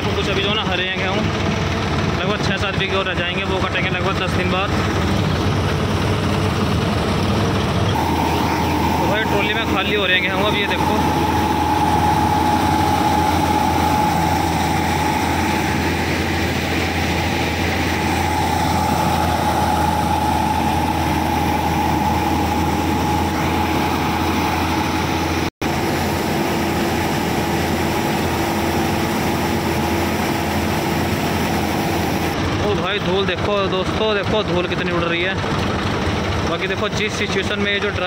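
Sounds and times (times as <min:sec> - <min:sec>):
combine harvester engine hum: 0:00.0 - 0:38.0
steady mechanical whine: 0:00.0 - 0:38.0.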